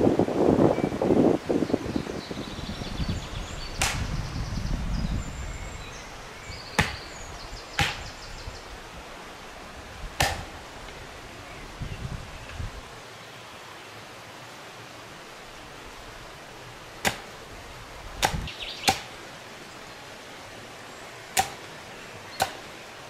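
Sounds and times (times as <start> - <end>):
axe chopping firewood: 3.8 - 4.0, 6.8 - 7.0, 7.8 - 8.1, 10.2 - 10.6, 17.0 - 17.4, 18.2 - 19.2, 21.3 - 21.8, 22.4 - 22.7.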